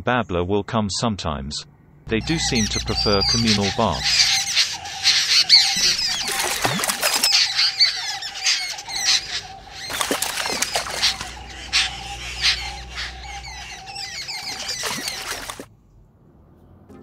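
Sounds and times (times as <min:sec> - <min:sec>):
birds splashing in water: 0:02.1 - 0:15.7
harsh bird squawking: 0:02.1 - 0:15.7.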